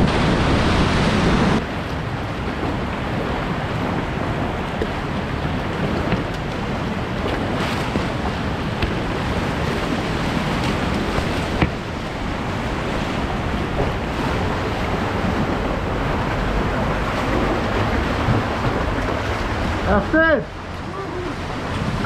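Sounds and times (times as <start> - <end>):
paddle splashes: 0.0 - 22.0
whitewater rapids rushing: 0.0 - 22.0
sharp knocks: 8.8 - 9.1, 11.2 - 11.9.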